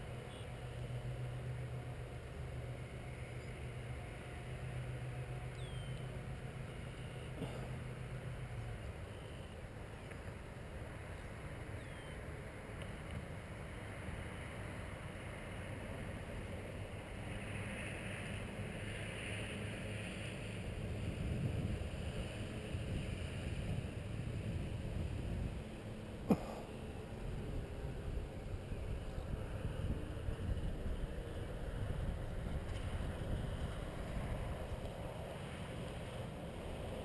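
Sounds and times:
wind on microphone: 20.9 - 25.6.

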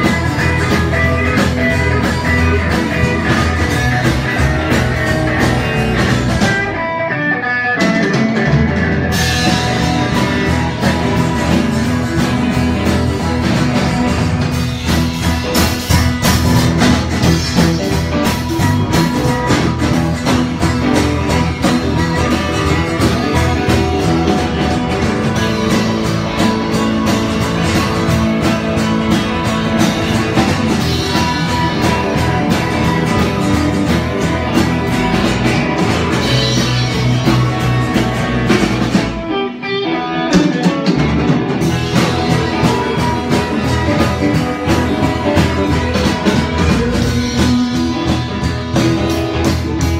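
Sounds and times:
live rock band playing: 0.0 - 49.9.

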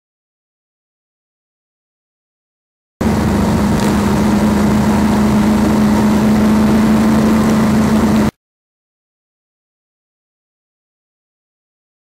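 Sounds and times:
wind noise: 3.0 - 8.3
motorcycle engine hum: 3.0 - 8.4
road noise: 3.0 - 8.4.

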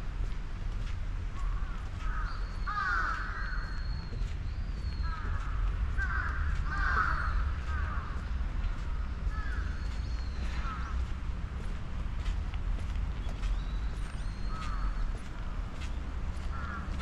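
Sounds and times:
steady low rumble: 0.0 - 17.0
birds harsh calls: 1.4 - 11.2, 13.2 - 15.2, 16.5 - 17.0.

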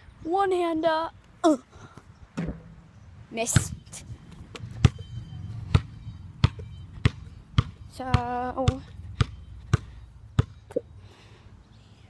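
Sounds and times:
basketball bouncing: 4.5 - 10.7.

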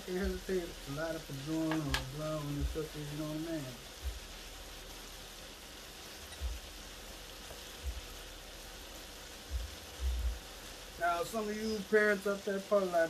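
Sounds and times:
sausage sizzling in frying pan: 0.0 - 13.0
dull low bumps: 4.0 - 4.4, 7.8 - 8.3, 9.5 - 10.5.

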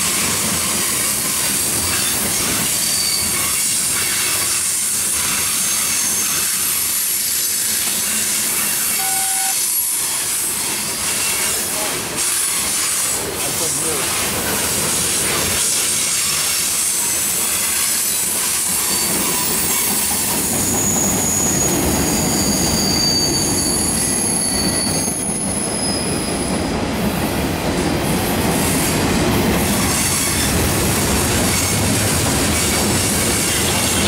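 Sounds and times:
train wheels rumbling on rails: 0.0 - 34.0
high wheel squeals: 1.9 - 13.2, 16.0 - 26.6.

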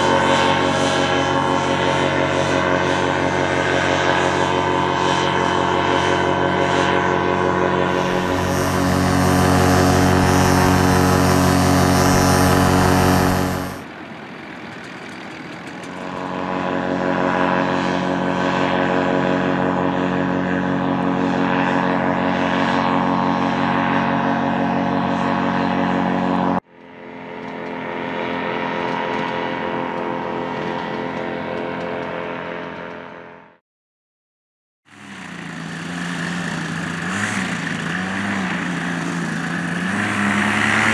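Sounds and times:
paramotor engine and propeller: 0.0 - 33.6, 34.9 - 40.9.

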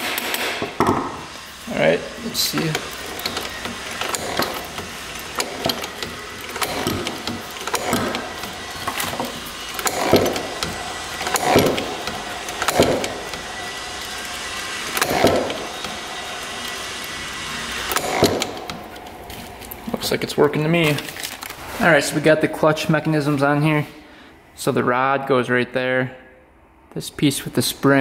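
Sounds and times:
kickstart mechanical whirs: 0.0 - 21.6.

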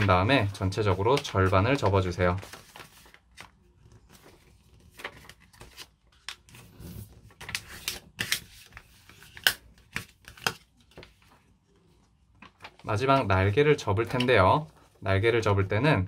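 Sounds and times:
paper rustling: 0.0 - 15.7
card swiping paper fold: 1.1 - 3.5, 4.1 - 11.1.

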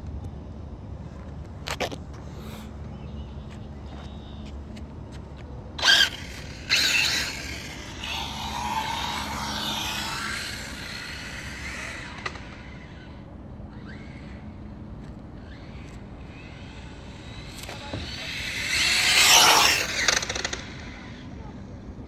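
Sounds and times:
toy car motor whine: 5.8 - 21.4.

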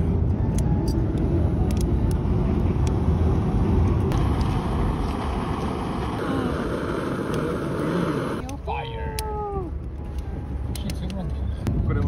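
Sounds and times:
camping stove roaring: 1.7 - 9.6.

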